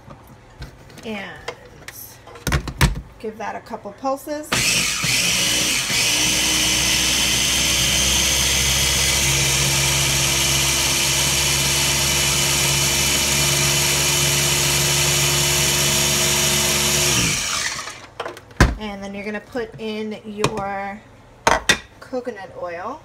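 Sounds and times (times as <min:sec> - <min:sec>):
food chopper motor running: 0:04.5 - 0:18.1.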